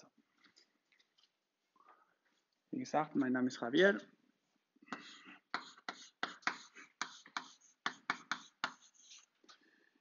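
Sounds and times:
chalk writing on a blackboard: 4.9s - 9.3s.

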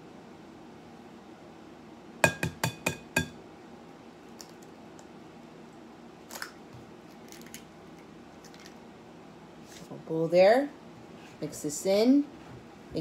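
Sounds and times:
egg tapping on glass bowl: 2.2s - 3.4s.

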